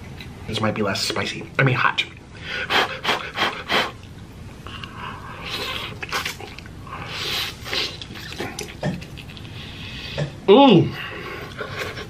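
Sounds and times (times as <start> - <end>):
wet chewing noises: 3.9 - 10.2
person slurping noodles: 7.0 - 8.8.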